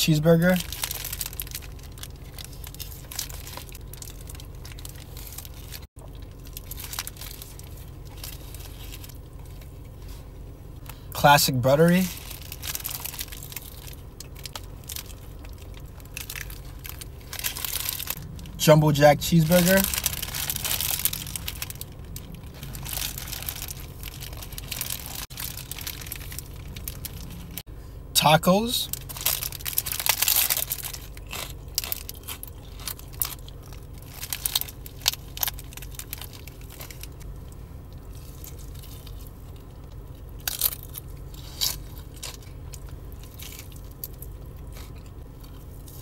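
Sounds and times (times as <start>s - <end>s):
steady low hum: 0.0s - 46.0s
paper wrapper crinkling: 0.6s - 9.2s, 12.0s - 27.6s, 28.9s - 37.2s
biting and chewing: 12.1s - 18.6s, 19.2s - 27.6s, 29.0s - 46.0s.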